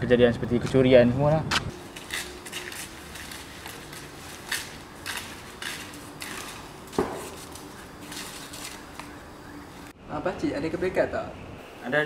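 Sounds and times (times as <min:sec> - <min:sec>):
footsteps on concrete: 0:01.5 - 0:09.2.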